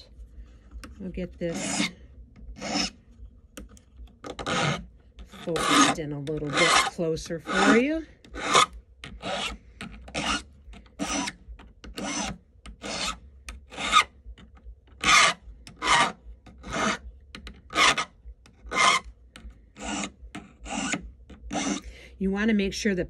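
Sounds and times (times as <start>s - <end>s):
hand file rasping on metal: 1.0s - 2.0s, 2.6s - 3.0s, 4.2s - 14.2s, 15.0s - 17.0s, 17.6s - 21.9s.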